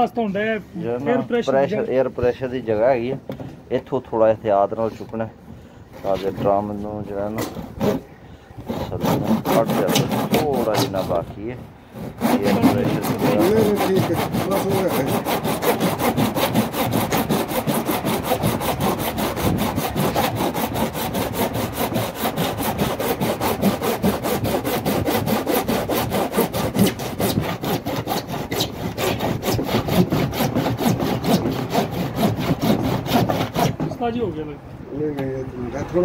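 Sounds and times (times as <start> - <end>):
saw cutting hard plastic: 6.0 - 34.1.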